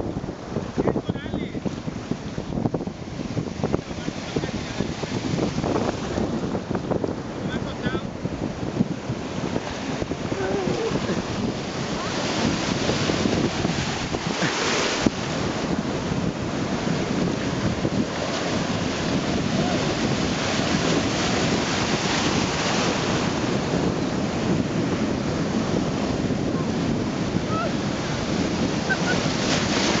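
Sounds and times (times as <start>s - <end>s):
ocean surf breaking: 0.0s - 30.0s
wind noise on microphone: 0.0s - 30.0s.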